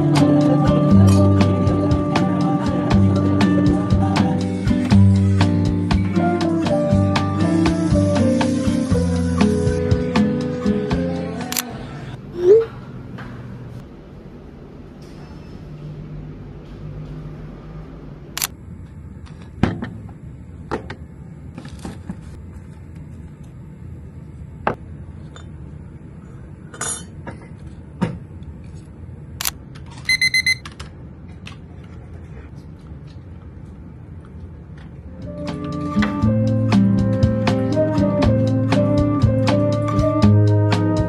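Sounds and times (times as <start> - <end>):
short electronic beeps: 30.1 - 30.6.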